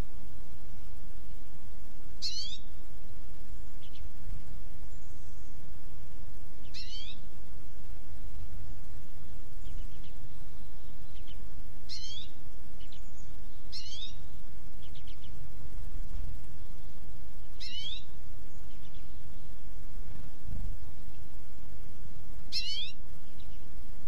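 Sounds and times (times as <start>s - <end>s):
birds calling: 2.2s - 2.7s, 6.6s - 7.3s, 9.2s - 15.4s, 16.4s - 20.3s, 22.4s - 23.7s.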